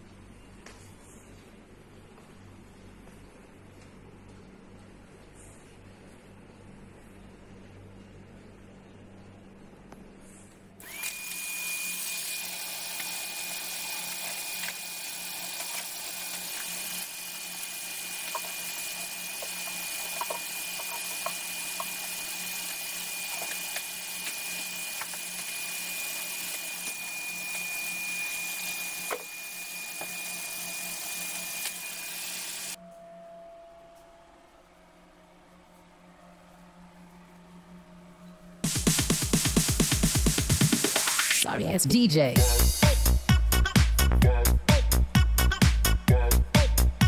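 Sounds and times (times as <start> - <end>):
vacuum cleaner running: 10.8 - 32.9, 38.6 - 41.8.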